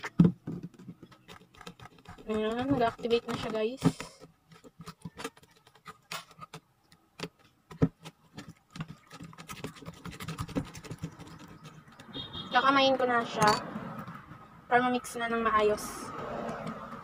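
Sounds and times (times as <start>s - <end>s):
metal spoon stirring slime in bowl: 1.1s - 6.7s, 8.0s - 14.1s.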